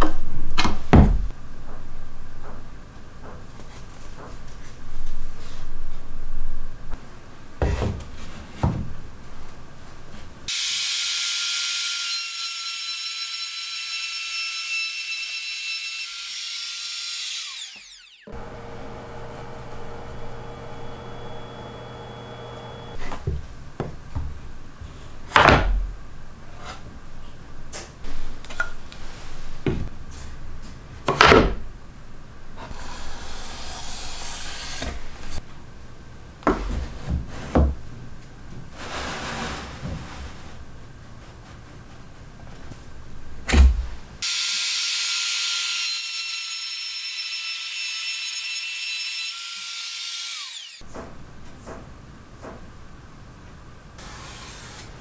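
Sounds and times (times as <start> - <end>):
power tool motor whining: 17.5 - 23.0, 49.6 - 50.8.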